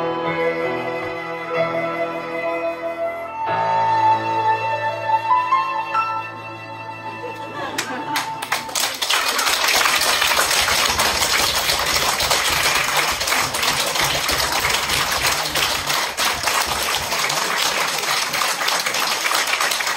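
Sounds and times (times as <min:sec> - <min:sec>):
audience applauding: 0:07.7 - 0:19.9.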